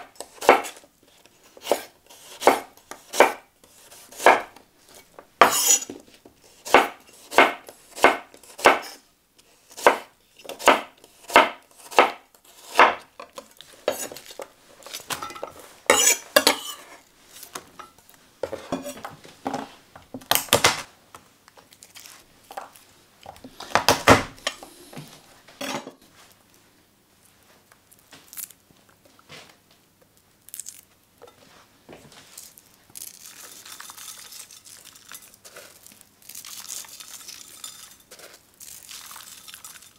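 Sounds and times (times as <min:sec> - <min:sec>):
knife slicing onion on board: 0:00.0 - 0:00.8, 0:01.4 - 0:13.1, 0:13.8 - 0:17.0
vegetables rustling in dish: 0:31.3 - 0:39.9.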